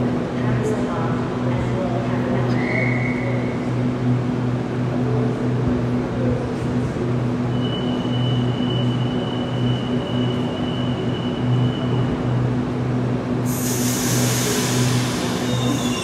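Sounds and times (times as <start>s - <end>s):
train pulsing hum: 0.0s - 16.0s
loud hiss of air: 13.4s - 16.0s.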